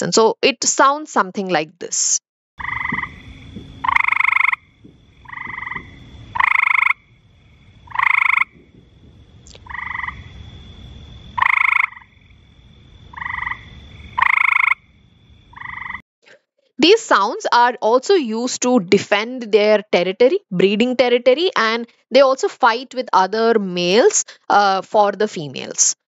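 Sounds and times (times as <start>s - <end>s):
frog croaking: 2.6s - 16.0s.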